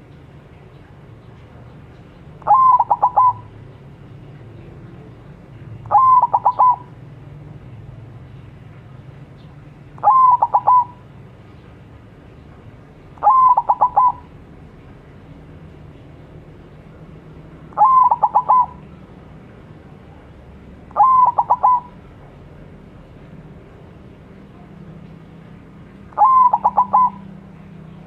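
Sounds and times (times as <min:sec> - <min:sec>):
dove cooing: 0:02.4 - 0:03.6, 0:05.9 - 0:07.0, 0:10.0 - 0:11.1, 0:13.2 - 0:14.4, 0:17.7 - 0:19.1, 0:20.9 - 0:22.1, 0:26.1 - 0:27.4.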